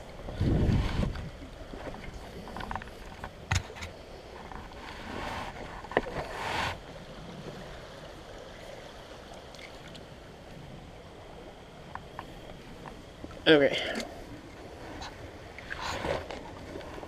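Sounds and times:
faint creek water: 0.0 - 17.0.

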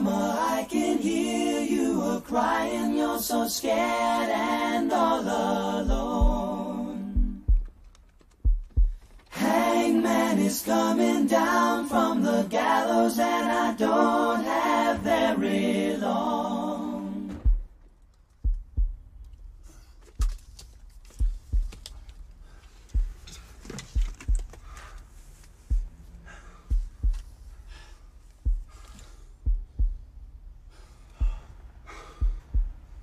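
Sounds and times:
heartbeat thumps: 5.7 - 9.3, 17.3 - 19.6, 20.2 - 33.0.

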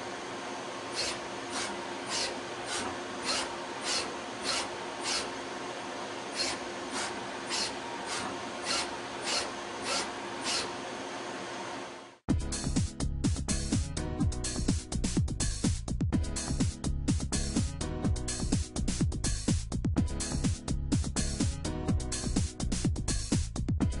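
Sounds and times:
lathe humming: 0.0 - 12.1
short scraping cuts: 0.9 - 5.4, 6.3 - 10.8.

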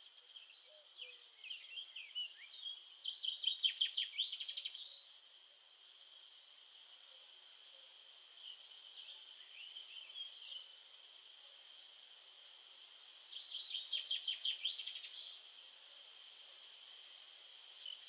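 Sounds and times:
high insect drone: 0.0 - 18.0
birds chirping: 8.3 - 11.3, 12.7 - 15.6.

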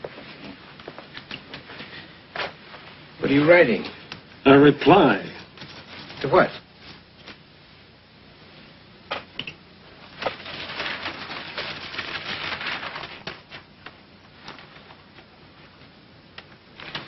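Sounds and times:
newspaper rustling: 5.4 - 7.4, 9.9 - 17.0.

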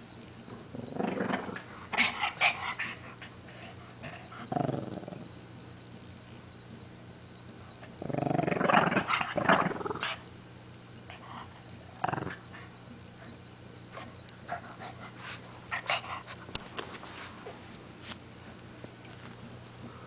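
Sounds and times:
dog growling: 0.7 - 3.0, 4.0 - 5.3, 7.8 - 10.2, 11.9 - 12.7.

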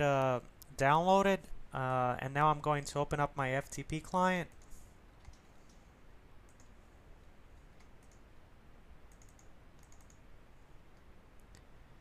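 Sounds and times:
faint computer mouse clicks: 4.5 - 5.8, 6.5 - 8.2, 9.1 - 10.2, 11.0 - 11.7.

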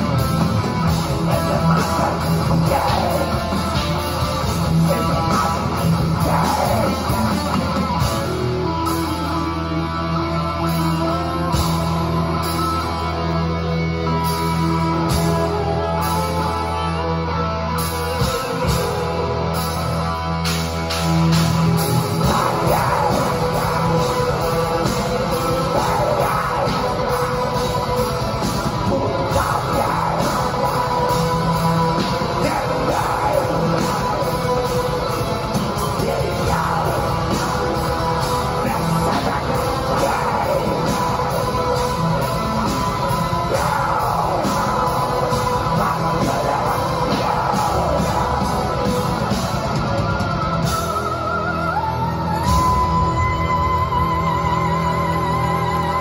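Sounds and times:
shouted vocals: 0.0 - 8.8, 21.6 - 56.0
bass guitar: 0.0 - 56.0
distorted electric guitars: 0.0 - 56.0
fast dense drumming: 21.3 - 51.0.

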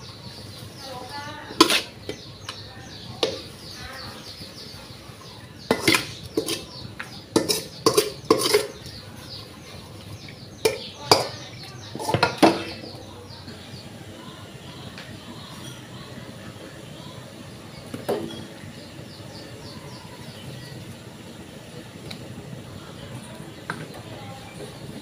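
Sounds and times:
spoon scraping metal bowl: 1.5 - 2.2, 5.7 - 8.9.

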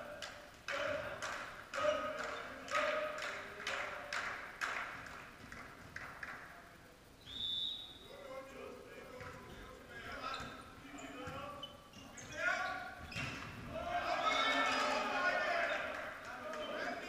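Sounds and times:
referee whistle blast: 7.2 - 8.0.

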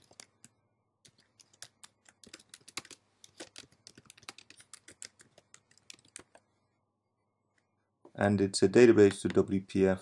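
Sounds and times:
faint keyboard typing: 0.0 - 6.5.

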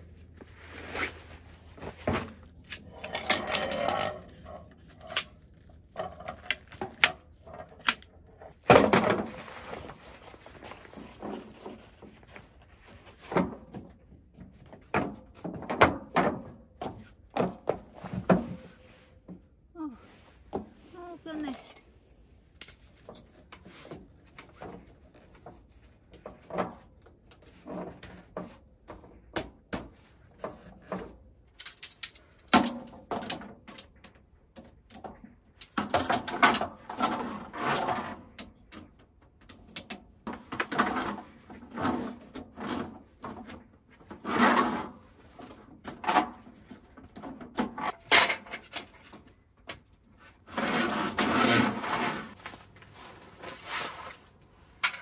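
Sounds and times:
rustling: 0.0 - 5.8
camping gear clicks and knocks: 1.7 - 18.7.

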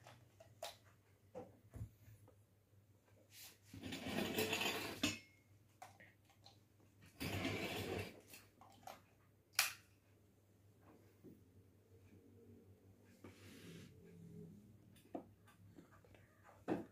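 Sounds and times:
kitchen vessels scraping: 3.7 - 5.3, 7.1 - 8.3.

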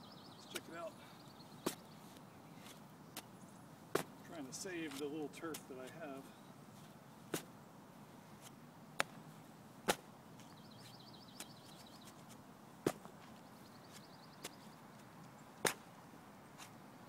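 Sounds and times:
shovel chopping into soil: 15.6 - 15.9.

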